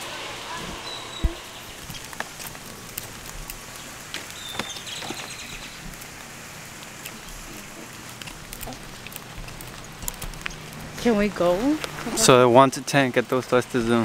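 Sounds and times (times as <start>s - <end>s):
steady outdoor hiss: 0.0s - 14.0s
high chirp: 0.8s - 2.1s.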